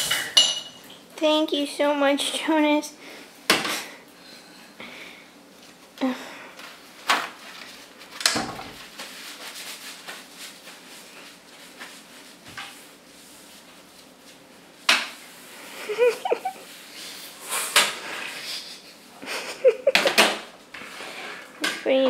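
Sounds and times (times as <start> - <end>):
kitchen things clicking and knocking: 0.0 - 1.0, 19.9 - 20.5.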